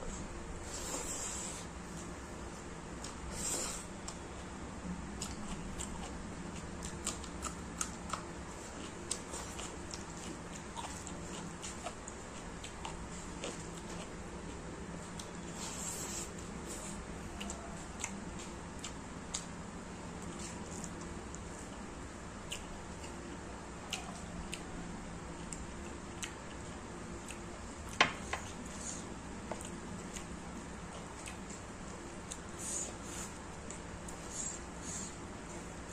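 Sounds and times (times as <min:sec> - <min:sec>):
steady low hum: 0:00.0 - 0:35.9
chewing sounds: 0:05.2 - 0:19.5, 0:22.4 - 0:35.9
wet chewing and mouth smacks: 0:29.6 - 0:34.3.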